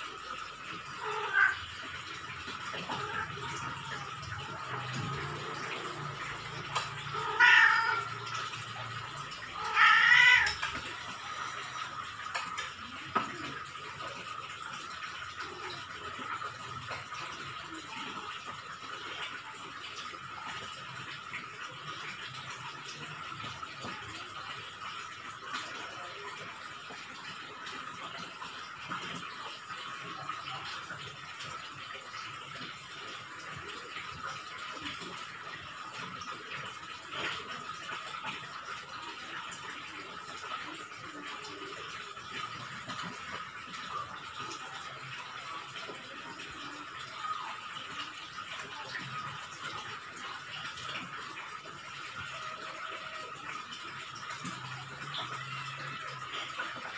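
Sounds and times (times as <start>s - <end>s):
cat meowing: 0.9s - 1.7s, 7.0s - 8.4s, 9.4s - 10.9s.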